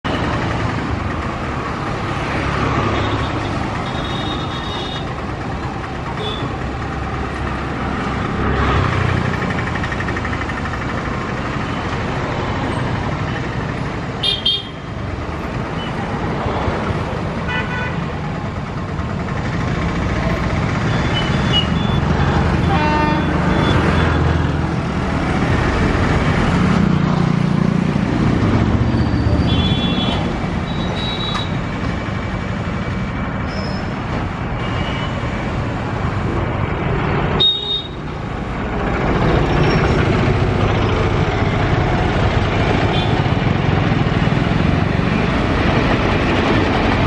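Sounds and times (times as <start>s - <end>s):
road traffic rumble: 0.0s - 47.0s
vehicle horn toots: 22.6s - 23.4s.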